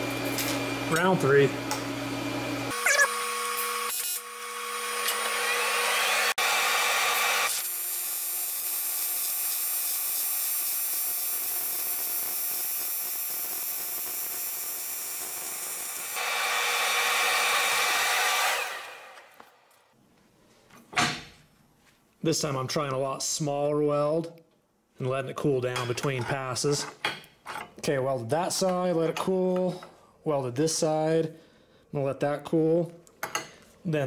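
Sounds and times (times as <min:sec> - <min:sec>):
welding arc buzzing and hissing: 0:01.3 - 0:19.3.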